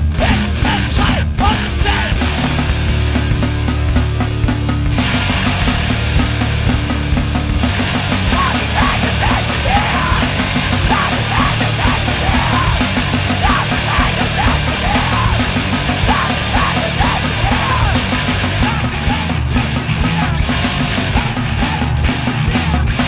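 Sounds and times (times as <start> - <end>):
screamed vocals: 0.0 - 2.2, 8.2 - 23.0
band playing loud music: 0.0 - 23.0.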